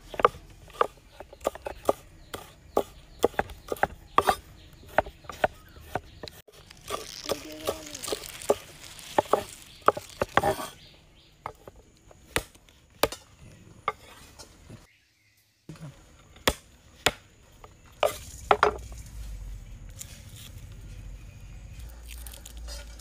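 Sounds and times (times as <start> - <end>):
knife chopping on wooden board: 0.0 - 10.8.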